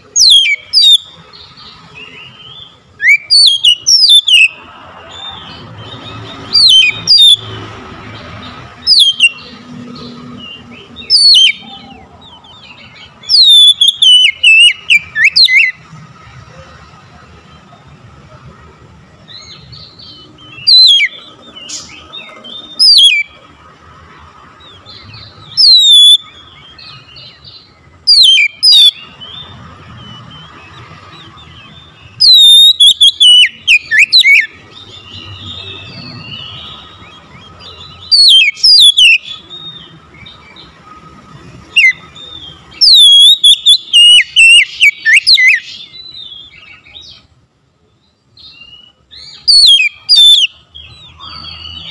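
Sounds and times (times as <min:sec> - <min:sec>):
bird singing sharp whistles: 0:03.0 - 0:04.5, 0:06.5 - 0:07.5, 0:08.9 - 0:09.4, 0:13.3 - 0:15.8, 0:25.5 - 0:26.2, 0:28.1 - 0:29.0, 0:32.1 - 0:37.0, 0:38.0 - 0:39.4, 0:41.8 - 0:45.8, 0:48.5 - 0:50.6.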